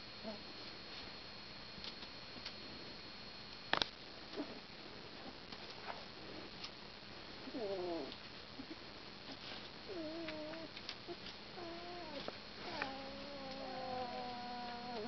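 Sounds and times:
puppy whining: 0:07.5 - 0:08.2, 0:09.9 - 0:15.0.

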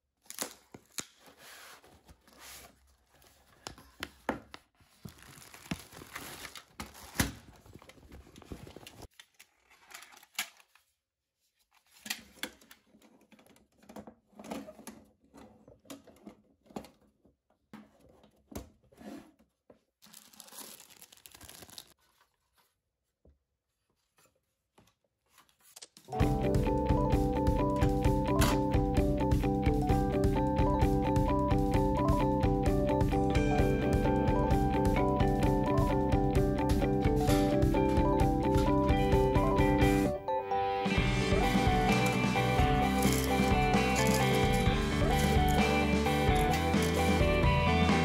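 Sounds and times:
tearing and crinkling: 0:00.2 - 0:02.3, 0:04.9 - 0:10.8, 0:20.0 - 0:22.7.

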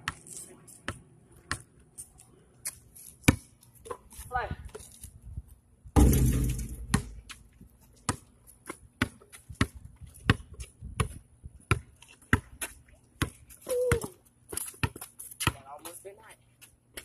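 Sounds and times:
basketball bouncing on concrete: 0:03.2 - 0:04.0, 0:06.0 - 0:07.4, 0:08.0 - 0:16.0.

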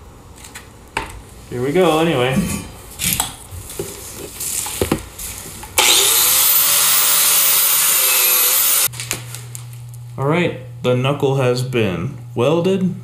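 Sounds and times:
angle grinder wire wheel whining: 0:05.8 - 0:08.9.

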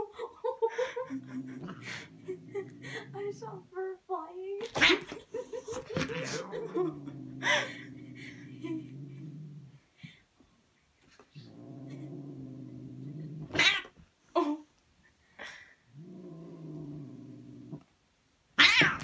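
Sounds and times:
cats hissing: 0:04.6 - 0:09.1, 0:13.4 - 0:13.9, 0:18.6 - 0:19.0
cats yowling: 0:13.5 - 0:13.9, 0:18.6 - 0:19.0.

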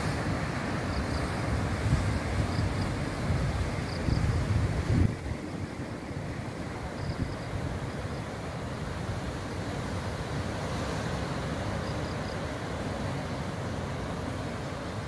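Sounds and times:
wind on microphone: 0:00.0 - 0:08.1
ocean surf breaking: 0:00.0 - 0:15.0.

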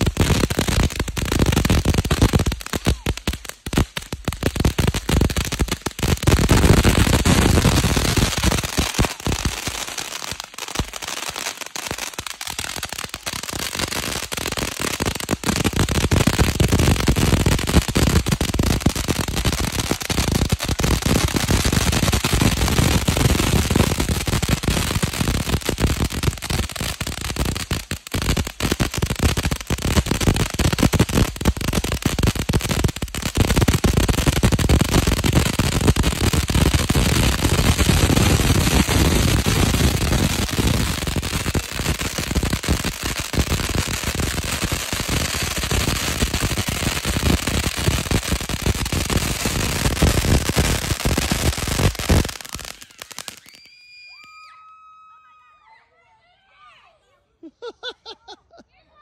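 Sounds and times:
firework fountain crackling: 0:00.0 - 0:54.4.

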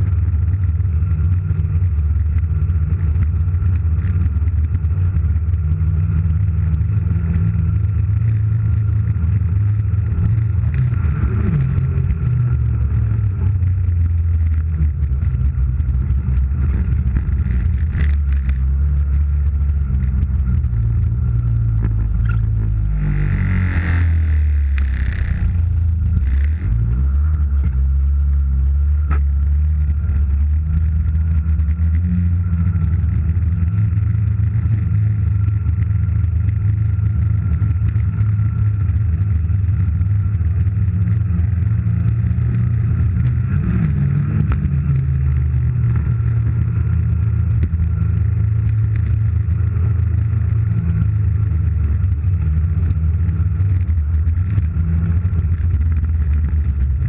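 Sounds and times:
rush of noise: 0:00.0 - 0:57.0
snowmobile engine running: 0:00.0 - 0:57.0.

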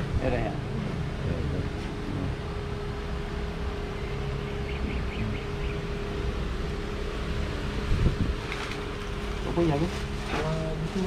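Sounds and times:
machine hum: 0:00.0 - 0:11.0
faint chirps: 0:03.9 - 0:06.2.

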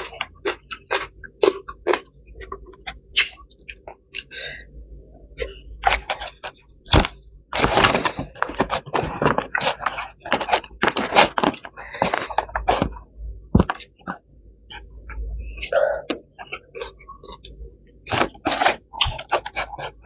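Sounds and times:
chewing: 0:00.0 - 0:04.3, 0:13.7 - 0:20.0
plastic container crackling: 0:05.8 - 0:13.0.

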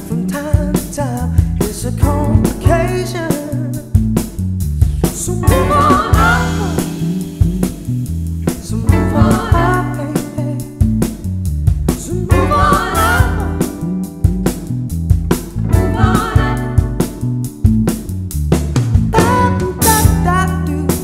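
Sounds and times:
swing and soul band playing: 0:00.0 - 0:21.0
person singing: 0:05.2 - 0:07.6, 0:08.5 - 0:10.8, 0:12.0 - 0:13.9, 0:15.7 - 0:17.0, 0:19.2 - 0:21.0
wavering lead line: 0:05.4 - 0:08.1, 0:12.3 - 0:14.7, 0:15.4 - 0:17.5.

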